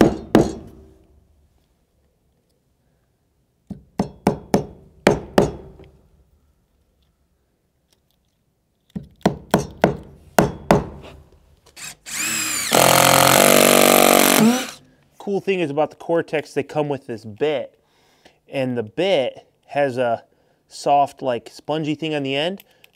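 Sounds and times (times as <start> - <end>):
drill running: 11.8 - 14.8.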